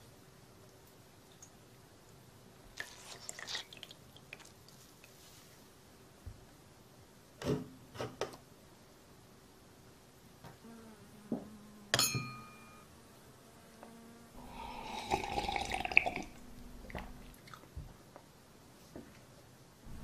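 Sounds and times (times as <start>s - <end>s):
wine glass clink: 12.0s - 12.8s
loud slurping and gulping: 14.4s - 17.7s.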